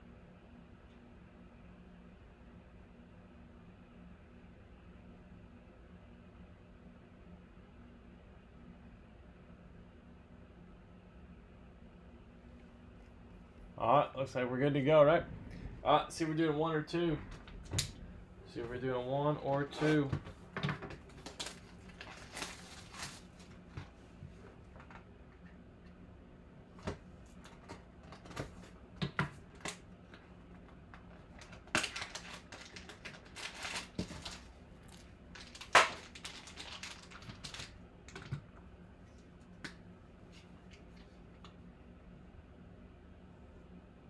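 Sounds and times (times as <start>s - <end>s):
cardboard rustling: 18.6s - 25.0s, 30.6s - 38.4s
plastic shrink wrap crinkling: 19.4s - 23.9s, 29.4s - 38.4s.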